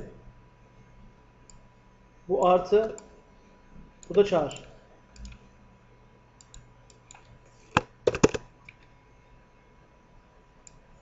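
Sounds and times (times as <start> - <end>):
computer mouse clicks: 4.0 - 5.4, 6.4 - 8.9.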